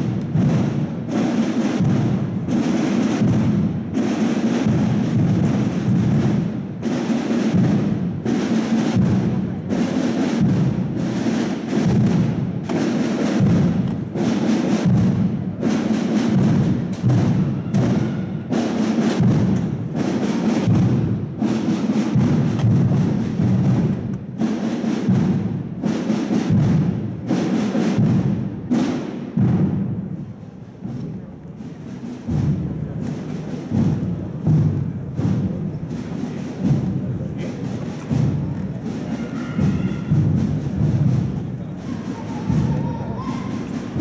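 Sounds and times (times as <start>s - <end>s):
drums beating march rhythm: 0.0s - 44.0s.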